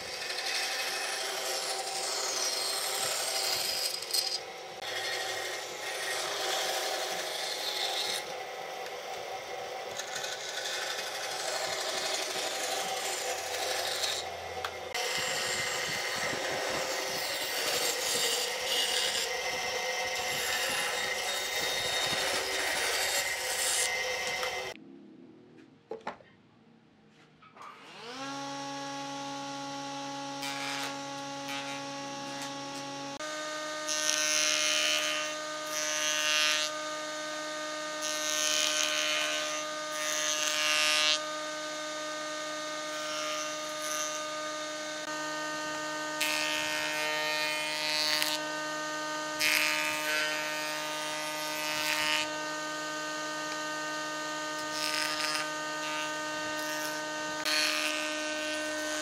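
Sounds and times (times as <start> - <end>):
machine motor whining: 41.3 - 59.0.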